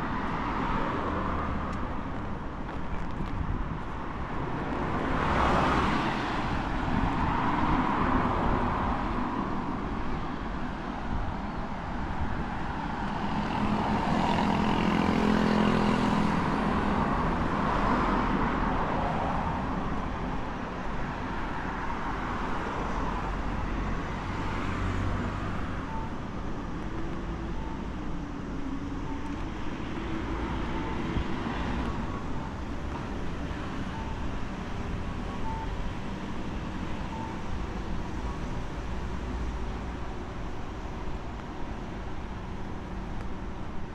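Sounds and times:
traffic hum: 0:00.0 - 0:43.9
faint short beeps: 0:35.4 - 0:35.8, 0:37.0 - 0:37.5.

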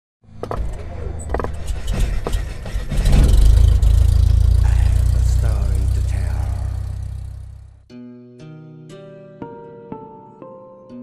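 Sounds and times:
deep low drone: 0:00.8 - 0:07.8
sharp hits: 0:01.5 - 0:07.8.

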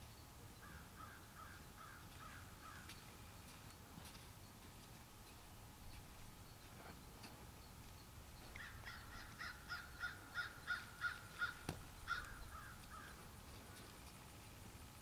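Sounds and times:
crow cawing: 0:00.6 - 0:02.9, 0:08.6 - 0:13.2.

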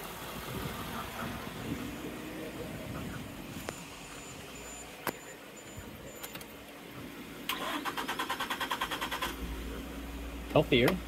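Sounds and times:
starter cranking engine: 0:07.5 - 0:09.5.

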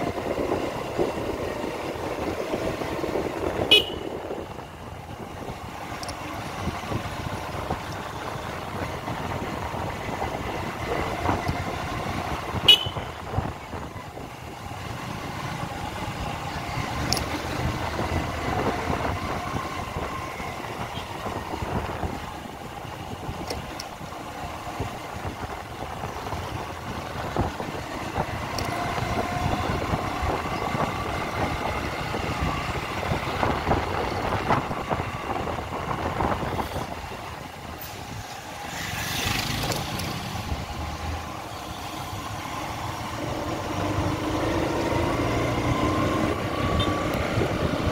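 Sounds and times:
traffic engines and road noise: 0:00.0 - 0:47.9
car horns tooting: 0:03.6 - 0:04.2, 0:12.5 - 0:13.2.

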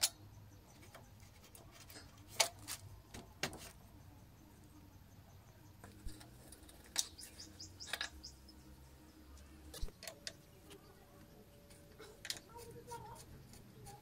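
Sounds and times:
faint bird chirps: 0:03.8 - 0:14.0
metal parts and tools clicking: 0:05.8 - 0:08.5, 0:09.7 - 0:10.8, 0:11.6 - 0:14.0.

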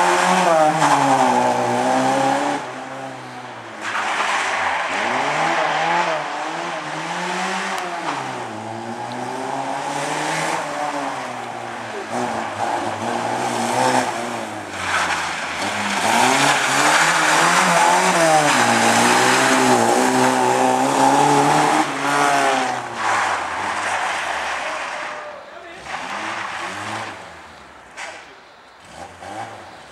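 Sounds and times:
car engine revving hard: 0:04.9 - 0:24.0, 0:28.8 - 0:29.8.

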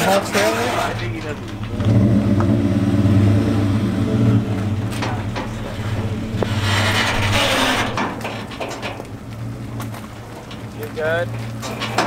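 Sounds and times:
truck engine running low speed: 0:00.0 - 0:12.0.

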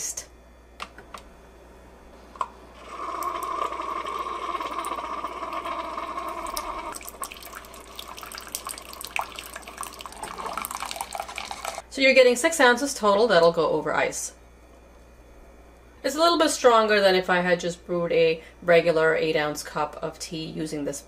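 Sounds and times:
coffee maker humming: 0:01.7 - 0:11.9
coffee pouring and splashing: 0:02.8 - 0:11.8.

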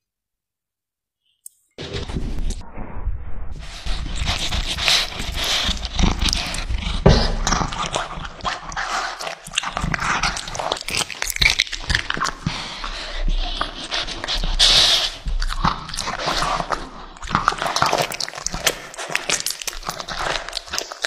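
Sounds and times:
cat chewing raw meat: 0:04.2 - 0:21.0.

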